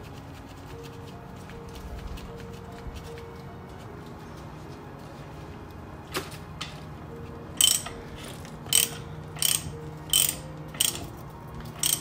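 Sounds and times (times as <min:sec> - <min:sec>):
ratchet wrench clicking: 0:07.6 - 0:12.0.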